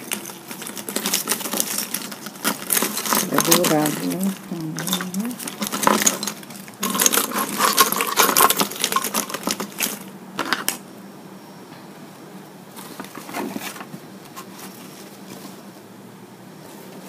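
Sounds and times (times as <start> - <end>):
ornaments clinking and rattling: 0.0 - 10.8.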